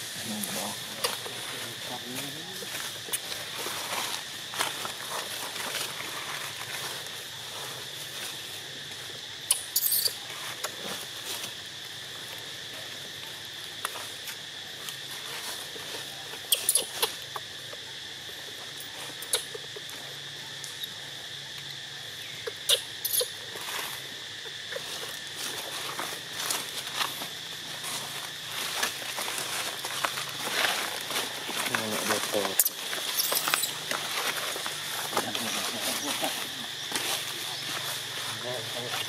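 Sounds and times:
high insect drone: 0.0s - 39.0s
baby monkey squeaking: 9.5s - 10.2s, 16.5s - 17.2s, 22.4s - 23.4s, 32.6s - 33.8s.

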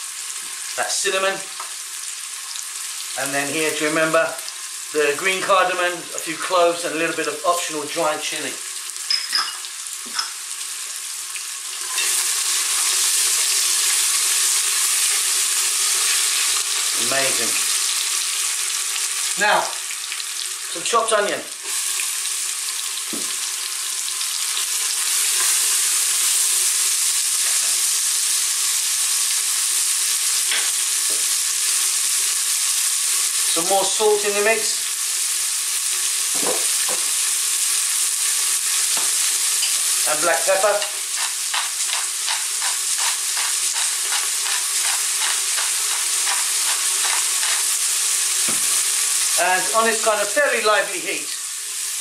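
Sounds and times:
onion sizzling in hot oil: 0.0s - 52.0s
wooden spoon stirring: 40.8s - 47.7s.

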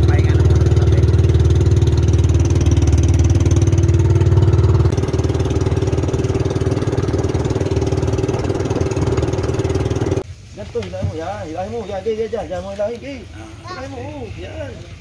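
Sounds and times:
boat engine running: 0.0s - 10.2s.

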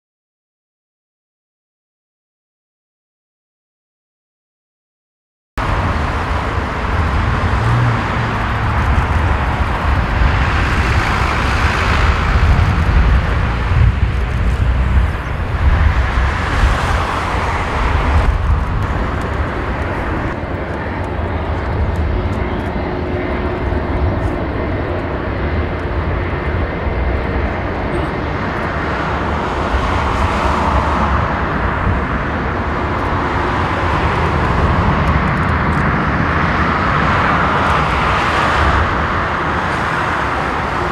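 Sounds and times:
jet engine roar: 5.6s - 40.9s.

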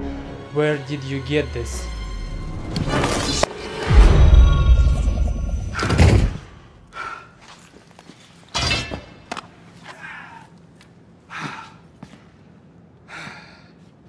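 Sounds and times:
sharp hit: 2.0s - 6.9s.

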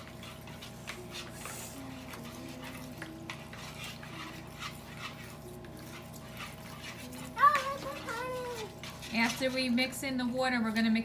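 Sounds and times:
spoons stirring in plastic bowls: 0.0s - 11.0s.

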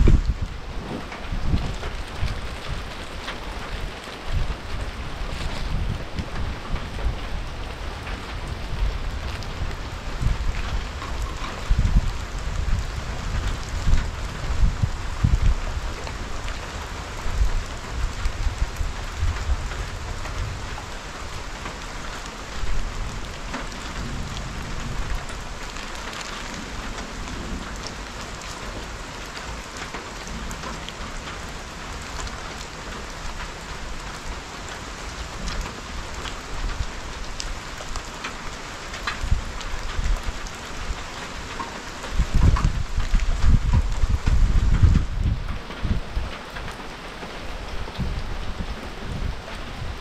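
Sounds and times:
low rumbling: 0.0s - 7.5s
rain drops ticking: 0.0s - 50.0s.

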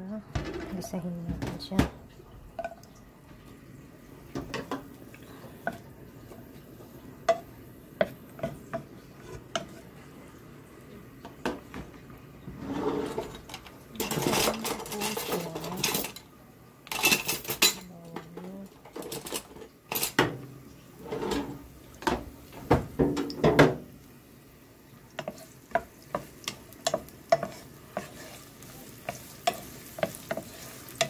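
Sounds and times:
garlic sizzling in oil: 3.4s - 17.2s, 18.6s - 31.0s
wooden utensil tapping pot: 7.2s - 8.9s, 25.2s - 28.4s, 29.0s - 31.0s.

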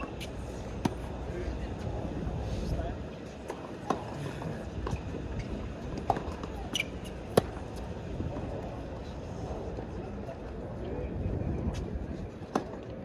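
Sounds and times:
background crowd noise: 0.0s - 13.0s.

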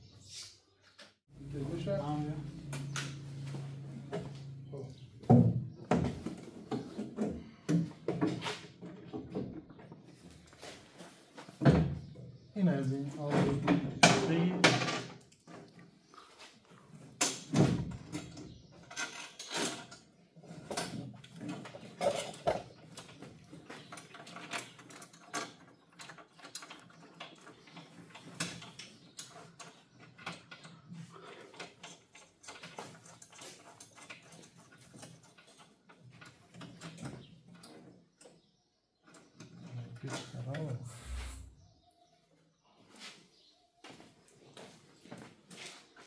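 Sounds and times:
hand tools and screws clinking: 17.2s - 37.9s.

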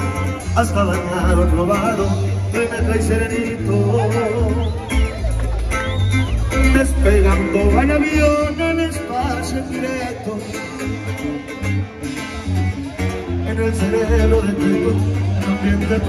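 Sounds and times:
person singing: 0.0s - 5.2s, 6.5s - 11.2s, 13.2s - 16.0s
guitar: 0.0s - 16.0s
heavy bass line: 0.0s - 16.0s.

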